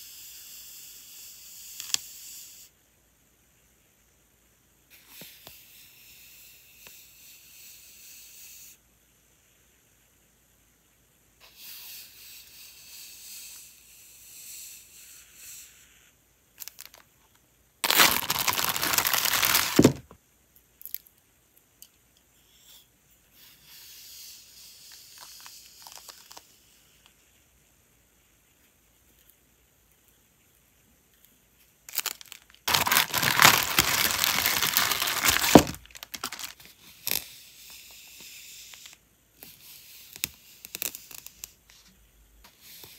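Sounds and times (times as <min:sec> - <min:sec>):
tape ripping rasp: 0:17.8 - 0:20.0, 0:23.8 - 0:26.6, 0:31.9 - 0:39.5, 0:40.1 - 0:41.6
paper tape rustling and crinkling: 0:17.8 - 0:20.1, 0:25.2 - 0:26.5, 0:31.9 - 0:37.2.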